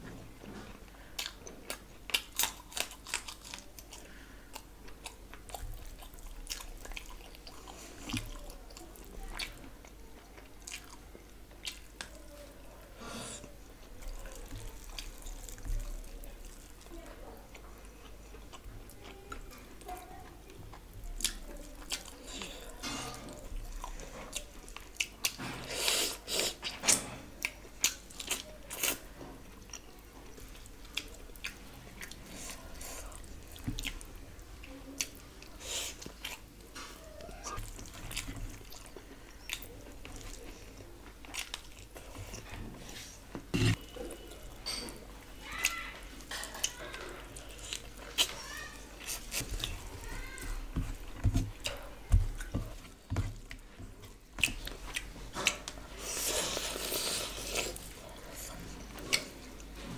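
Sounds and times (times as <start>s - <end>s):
wet chewing and mouth smacks: 1.2s - 9.6s, 10.4s - 12.2s, 29.6s - 42.6s, 49.0s - 59.8s.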